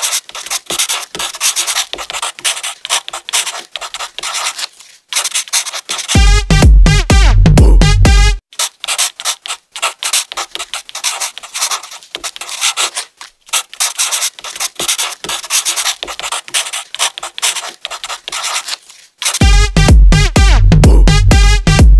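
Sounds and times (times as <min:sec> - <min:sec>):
pen scratching on paper: 0:00.0 - 0:06.2, 0:08.6 - 0:19.4.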